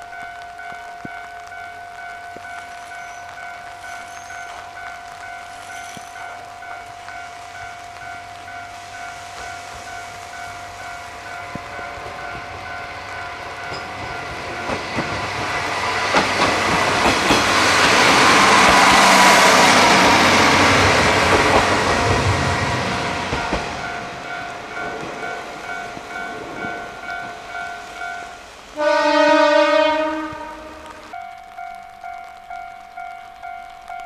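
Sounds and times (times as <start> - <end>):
pulsing ringing tone: 0.0 - 14.8
train engine and wheels rumbling: 0.0 - 34.0
wheels clicking over rail joints: 2.0 - 28.2
train horn blast: 28.8 - 31.1.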